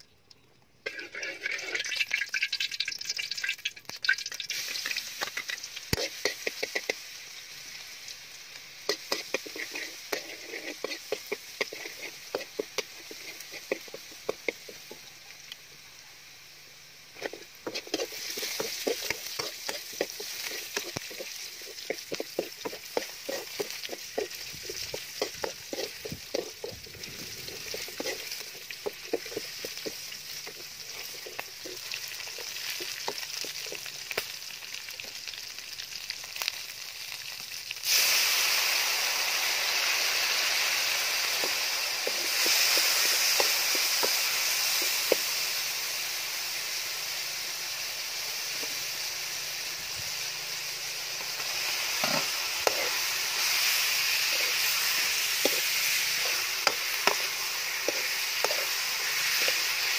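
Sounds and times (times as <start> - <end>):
aromatics sizzling in oil: 0.0 - 59.9
metal spoon scraping wok: 0.8 - 2.1, 4.5 - 7.1, 8.8 - 15.0, 17.1 - 33.9, 41.2 - 45.4, 50.2 - 59.9.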